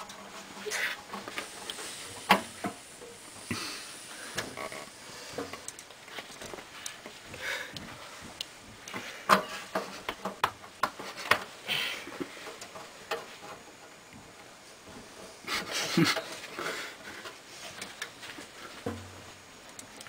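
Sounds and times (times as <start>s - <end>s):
clicks and knocks of metal: 0.0s - 2.8s, 5.4s - 20.0s.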